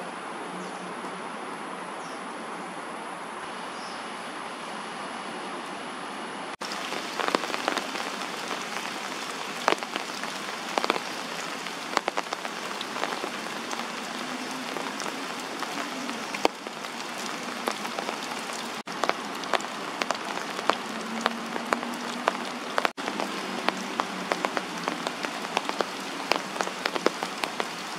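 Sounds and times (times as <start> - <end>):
heavy rain falling: 6.5 - 27.9
sharp raindrop hits: 6.6 - 27.9.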